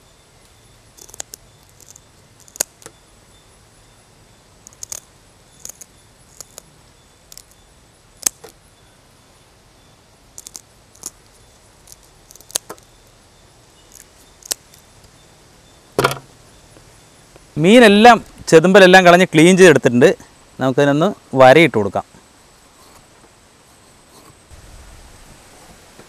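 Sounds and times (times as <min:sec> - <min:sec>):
scissors snipping: 0:01.0 - 0:02.9, 0:04.7 - 0:05.0, 0:05.6 - 0:06.6.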